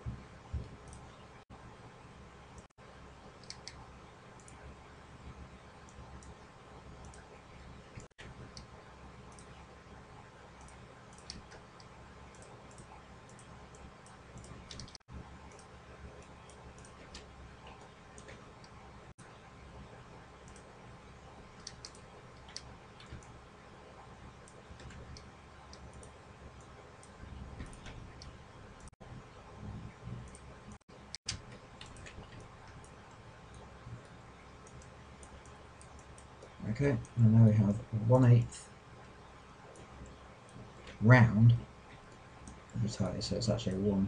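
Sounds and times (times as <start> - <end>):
steady low hum: 0.0 - 44.0
computer mouse clicks: 0.6 - 1.2, 3.4 - 3.8, 4.4 - 4.7, 7.0 - 7.3, 7.9 - 9.6, 10.6 - 19.4, 20.4 - 20.7, 21.5 - 23.4, 24.4 - 29.0, 30.1 - 37.2, 41.9 - 42.8.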